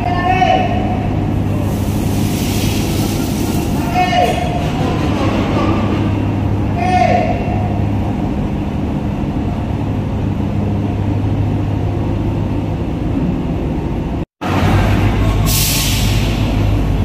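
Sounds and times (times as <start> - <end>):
air brake hiss: 1.6 - 3.8, 15.3 - 16.7.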